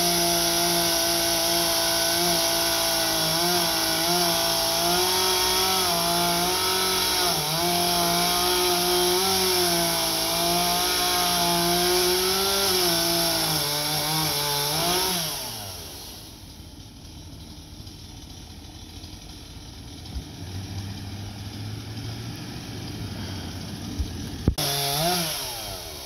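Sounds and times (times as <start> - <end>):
chainsaw running at high revs: 0.0 - 26.0
faint low truck engine hum: 16.2 - 24.6.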